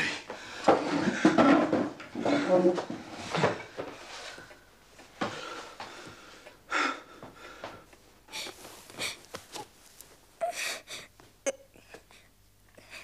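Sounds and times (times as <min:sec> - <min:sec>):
person crying and sniffing: 0:08.3 - 0:09.7, 0:10.4 - 0:12.0.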